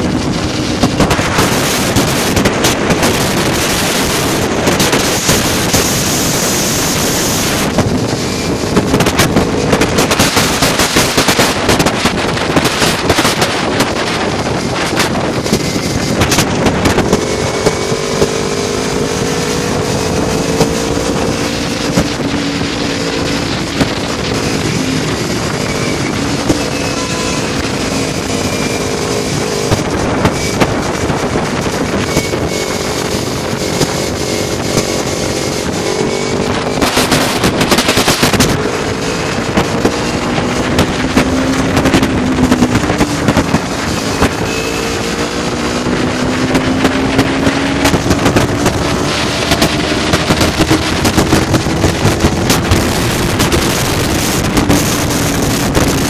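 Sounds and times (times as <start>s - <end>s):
loud rush of noise: 0.0s - 56.0s
motorcycle engine running: 0.0s - 56.0s
wind rushing on microphone: 0.0s - 56.0s.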